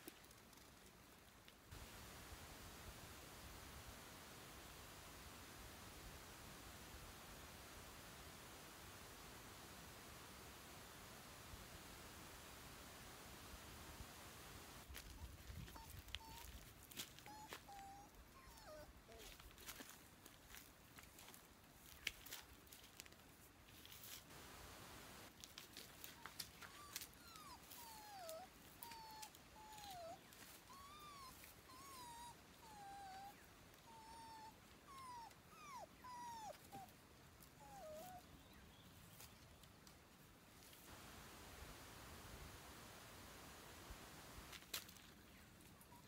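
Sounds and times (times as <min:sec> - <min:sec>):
faint ticks and rustles: 0:00.0 - 0:31.7, 0:36.5 - 0:46.0
dog whimpering: 0:15.7 - 0:16.4, 0:17.3 - 0:19.2, 0:26.7 - 0:36.9, 0:37.6 - 0:38.2.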